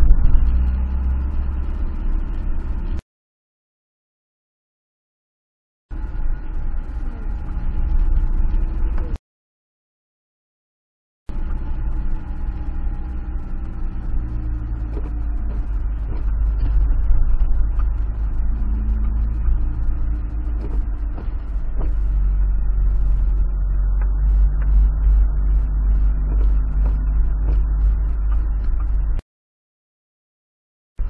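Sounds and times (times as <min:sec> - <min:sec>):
car engine: 0:00.0 - 0:03.0, 0:05.9 - 0:09.2, 0:11.3 - 0:29.2
rumbling road noise: 0:00.0 - 0:03.0, 0:05.9 - 0:09.2, 0:11.3 - 0:29.2.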